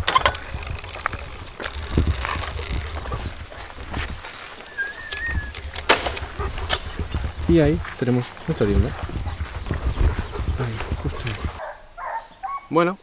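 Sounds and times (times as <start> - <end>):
wooden gate pushed open: 0.0 - 7.0
footsteps on dry grass: 0.0 - 12.4
warbling bird call: 4.6 - 7.1.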